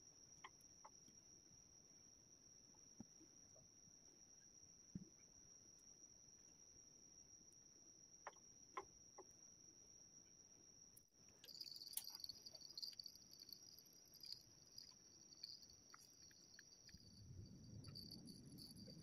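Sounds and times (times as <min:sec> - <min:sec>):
high-pitched insect chirping: 0:11.4 - 0:19.0.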